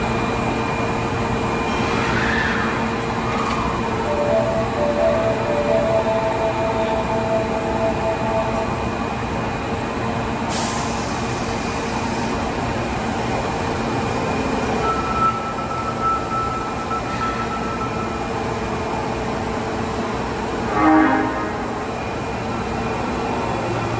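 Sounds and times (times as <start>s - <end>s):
subway train equipment hum: 0.0s - 23.9s
air release hiss: 10.5s - 11.6s.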